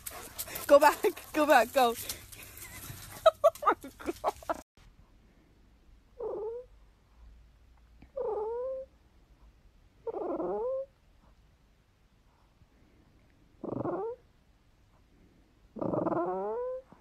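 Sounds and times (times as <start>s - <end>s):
dog whining: 6.2s - 6.7s, 8.2s - 8.9s, 10.0s - 10.9s, 13.6s - 14.2s, 15.8s - 17.0s.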